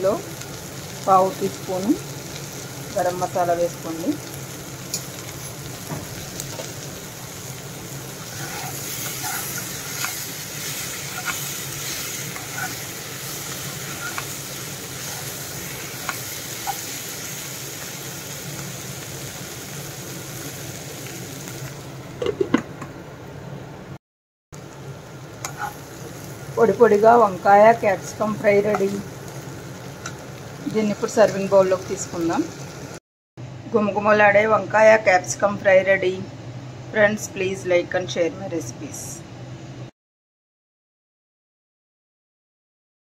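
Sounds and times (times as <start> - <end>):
vegetables sizzling in a pan: 0.0 - 22.0, 24.6 - 33.0
spatula scraping a pan: 8.2 - 17.4, 25.4 - 25.8.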